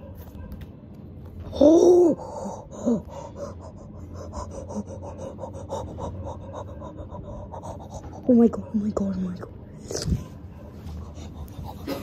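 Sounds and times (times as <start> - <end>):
rapid excited panting: 2.2 - 8.8, 10.9 - 12.0.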